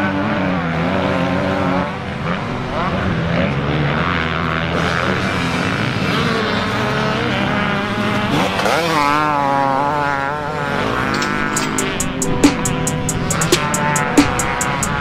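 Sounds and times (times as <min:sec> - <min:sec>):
motocross bike engine revving: 0:00.0 - 0:15.0
music beat with hi-hat: 0:11.2 - 0:15.0.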